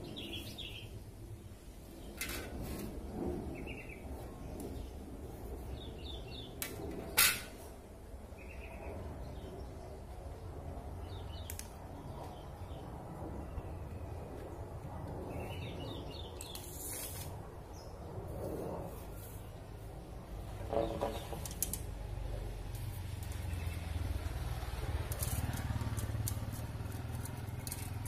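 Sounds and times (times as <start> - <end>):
birds chirping: 0.0 - 1.0, 19.7 - 21.6
tape measure rasp: 16.4 - 17.4.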